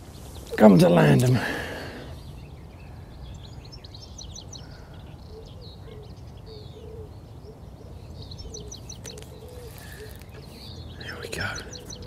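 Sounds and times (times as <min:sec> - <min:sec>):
small birds chirping: 0:00.0 - 0:12.0
pigeon cooing: 0:05.3 - 0:12.0.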